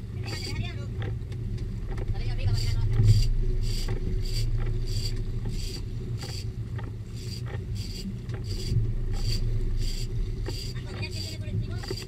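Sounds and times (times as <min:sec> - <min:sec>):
boat engine running: 0:00.0 - 0:12.0
regular high-pitched rasp: 0:02.5 - 0:06.5, 0:07.2 - 0:12.0.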